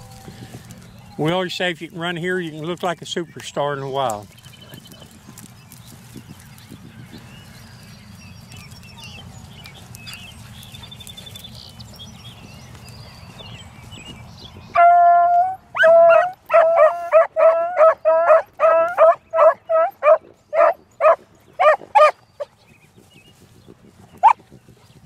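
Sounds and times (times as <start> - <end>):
hound baying: 14.7 - 22.2.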